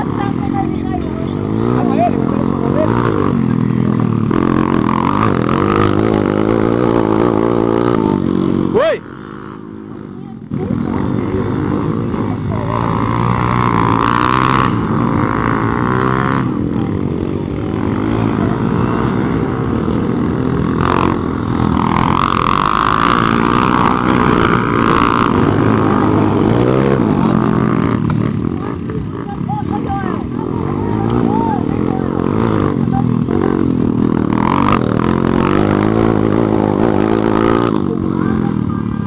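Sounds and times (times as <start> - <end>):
motorcycle engines revving: 0.0 - 39.0.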